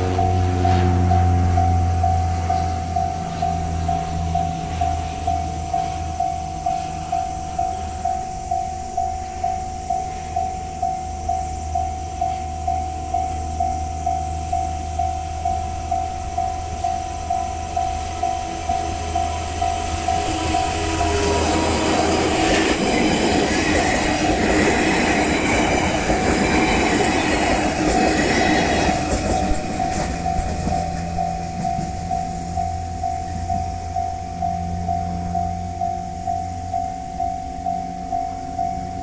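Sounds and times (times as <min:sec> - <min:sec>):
electric train passing: 0:00.0 - 0:39.0
level crossing alarm ringing: 0:00.0 - 0:39.0.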